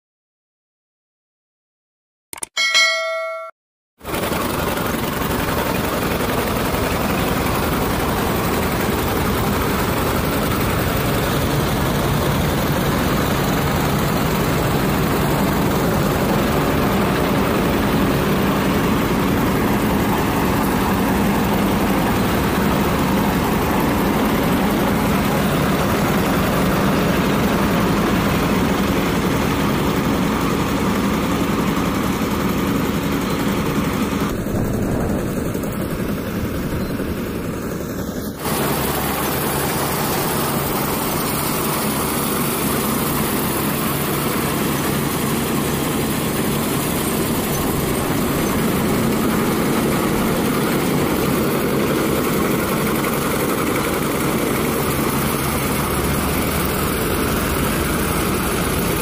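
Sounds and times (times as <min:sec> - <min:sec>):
combine harvester running: 0:04.0 - 0:59.0
engine hum: 0:04.0 - 0:59.0.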